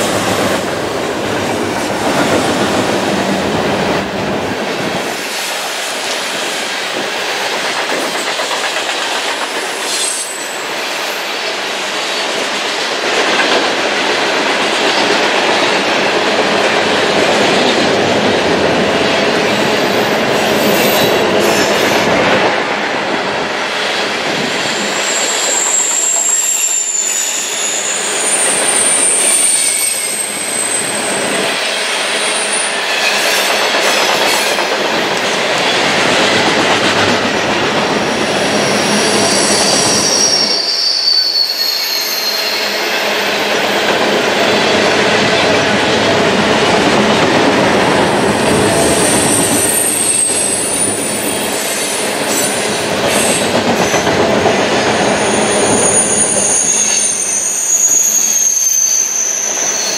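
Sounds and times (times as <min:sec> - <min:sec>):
train wheels rumbling on rails: 0:00.0 - 0:59.9
high-pitched wheel squeal: 0:24.7 - 0:31.4, 0:38.5 - 0:42.8, 0:48.9 - 0:52.6, 0:55.1 - 0:59.9.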